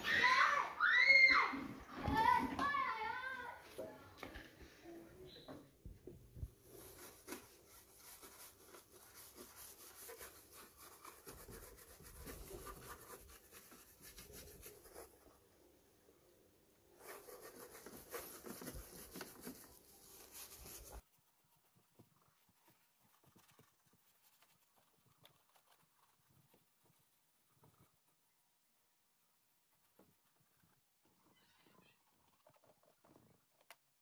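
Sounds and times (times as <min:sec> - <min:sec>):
paintbrush scrubbing plastic: 0:06.4 - 0:15.4, 0:16.9 - 0:34.0.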